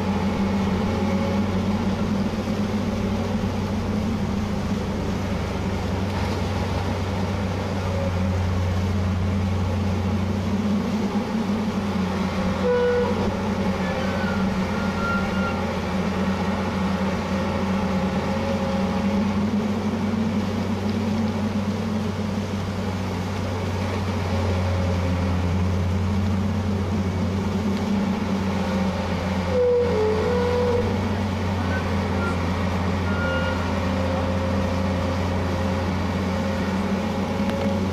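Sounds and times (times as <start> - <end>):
excavator diesel engine droning: 0.0 - 37.9
short squeaks: 12.6 - 15.8, 29.4 - 31.0, 31.6 - 34.2.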